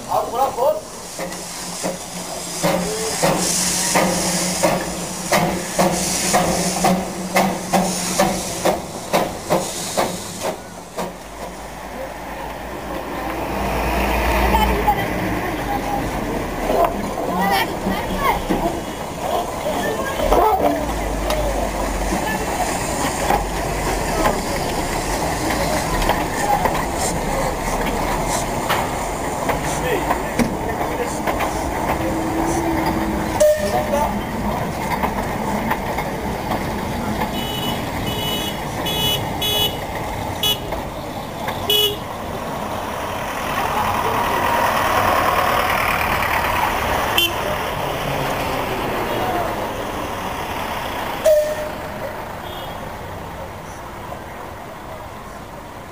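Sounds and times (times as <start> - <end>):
steam hissing: 0.0 - 14.5, 21.1 - 39.6
steam locomotive exhaust chuffs: 0.8 - 11.9.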